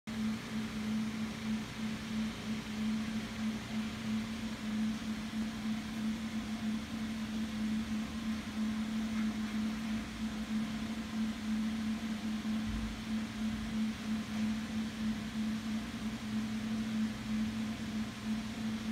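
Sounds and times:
low machine hum: 0.1 - 18.9.

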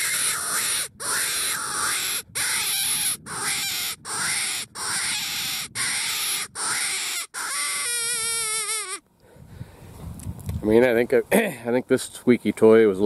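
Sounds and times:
squeaky predator call squealing: 0.0 - 9.0.

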